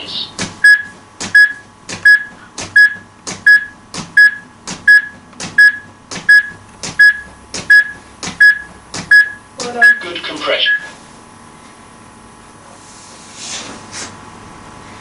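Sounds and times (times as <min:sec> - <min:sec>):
short repeating beeps: 0:00.6 - 0:10.0.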